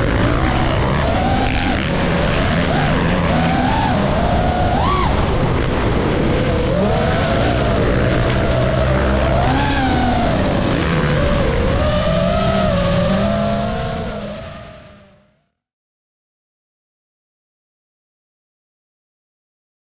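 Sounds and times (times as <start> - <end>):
dirt bike engines revving: 0.0 - 15.3.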